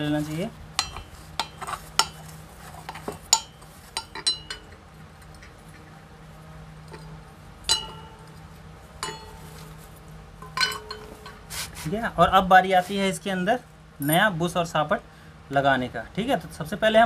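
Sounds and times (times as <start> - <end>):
metal clinks: 0.8 - 2.3, 3.3 - 5.5, 6.9 - 9.8, 10.4 - 11.4
rag wiping metal: 10.5 - 12.1.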